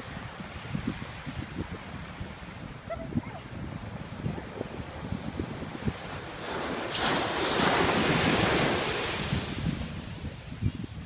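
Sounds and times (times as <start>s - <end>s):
ocean waves breaking on beach: 0.0s - 11.0s
wind buffeting microphone: 0.0s - 11.0s.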